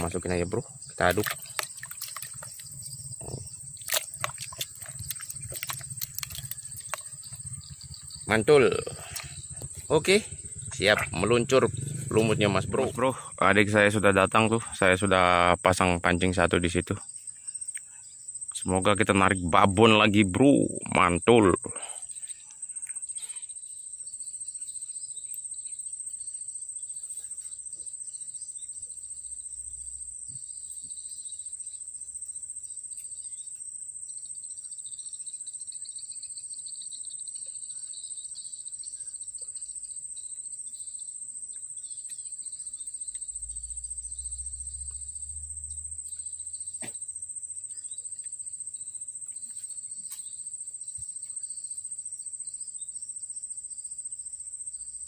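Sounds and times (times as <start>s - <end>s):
insects high-pitched drone: 0.0s - 55.0s
lower pulsing trill: 6.5s - 14.1s.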